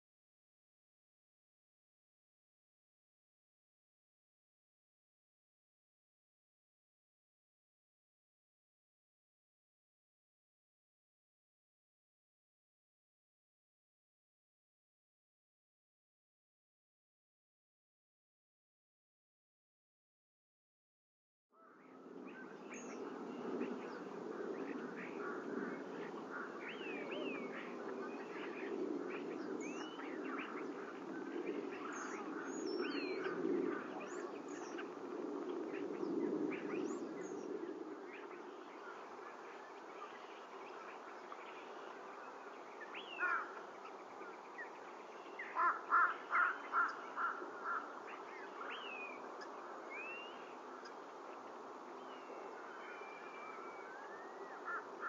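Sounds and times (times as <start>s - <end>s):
loud evenly spaced bird calls: 21.6s - 55.0s
wild birds chirping and calling: 21.6s - 55.0s
low background noise: 21.8s - 55.0s.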